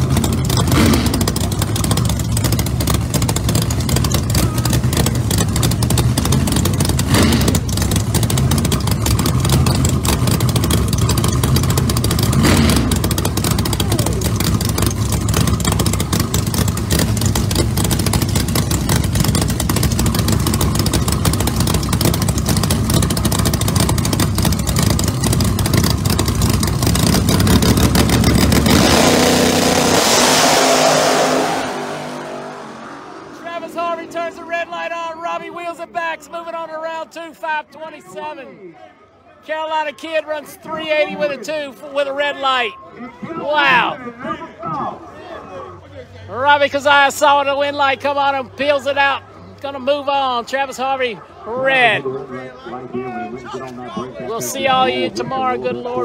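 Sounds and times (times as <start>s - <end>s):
engine throttle blips: 0.0s - 35.8s
drag car engines idling: 0.0s - 36.0s.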